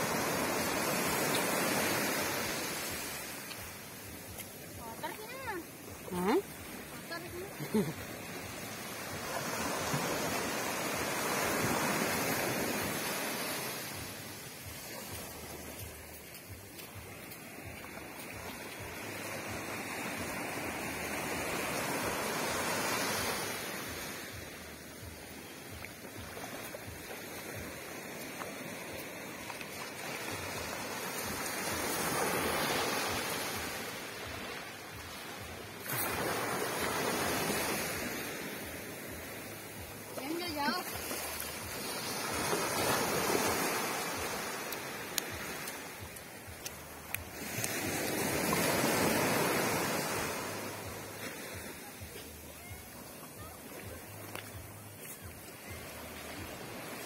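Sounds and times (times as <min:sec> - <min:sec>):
small waves washing on sand: 0:00.0 - 0:57.0.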